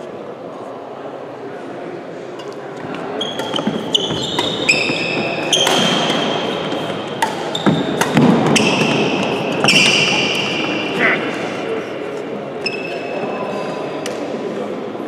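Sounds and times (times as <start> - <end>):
background murmur of hall: 0.0 - 15.0
rackets striking shuttlecock: 2.4 - 11.4
shoes squeaking on floor: 2.9 - 11.6, 12.6 - 13.3.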